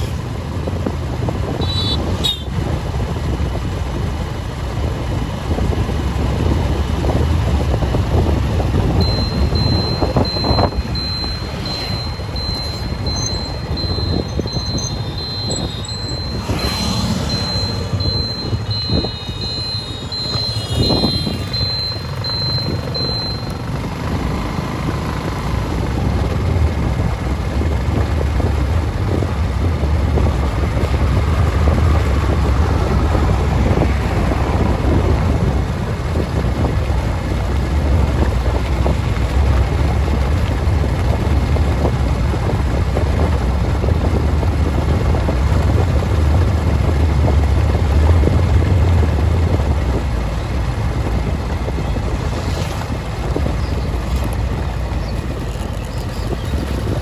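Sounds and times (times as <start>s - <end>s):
vehicle rumbling on brick road: 0.0s - 57.0s
wind buffeting microphone: 23.6s - 57.0s.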